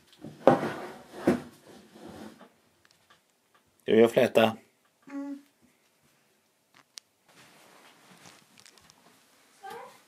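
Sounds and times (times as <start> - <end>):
soft rustling: 5.7 - 10.0.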